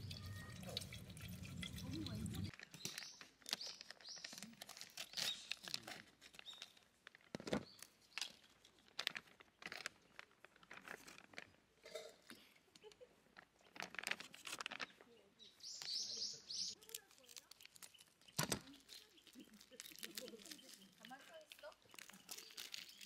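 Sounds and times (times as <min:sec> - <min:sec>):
plastic bag crinkling: 0:02.5 - 0:11.6, 0:13.6 - 0:15.0, 0:16.8 - 0:23.0.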